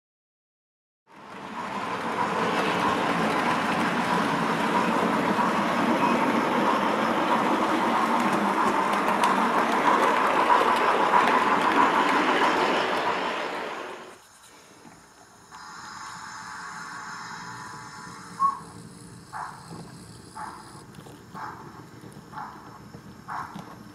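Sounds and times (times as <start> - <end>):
model train running on track: 1.1 - 23.9
recorded steam engine sounds: 1.1 - 23.9.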